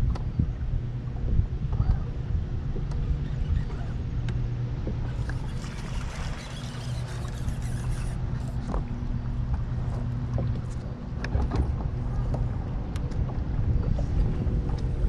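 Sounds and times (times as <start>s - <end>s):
trolling motor hum: 0.0s - 15.0s
wind buffeting microphone: 0.0s - 15.0s
water splashing: 4.9s - 11.7s.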